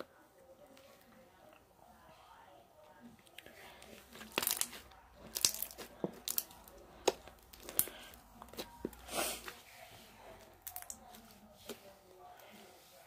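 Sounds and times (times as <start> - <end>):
slime squelch: 3.2 - 13.0.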